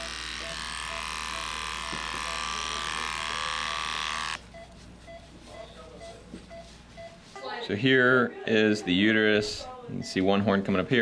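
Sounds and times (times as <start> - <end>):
electric clippers buzzing: 0.0 - 4.4
soft rubbing of skin: 4.4 - 7.7
short beeps: 4.5 - 7.2.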